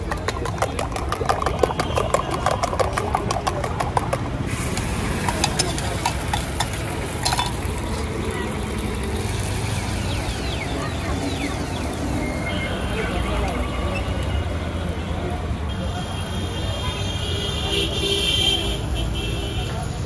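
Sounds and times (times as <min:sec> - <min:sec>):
eggs beaten in a steel mug: 0:00.0 - 0:07.7
street traffic rumble: 0:00.0 - 0:20.0.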